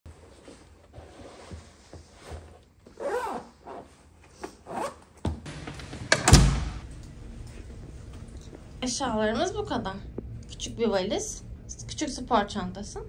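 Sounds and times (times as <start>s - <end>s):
bag zipper pulled: 2.9s - 4.0s, 4.6s - 5.0s.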